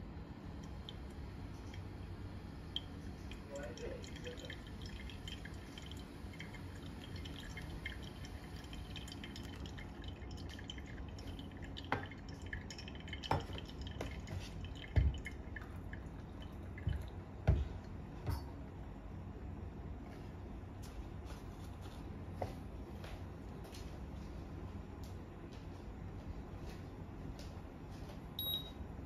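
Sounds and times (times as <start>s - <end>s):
coffee dripping: 0.4s - 18.0s.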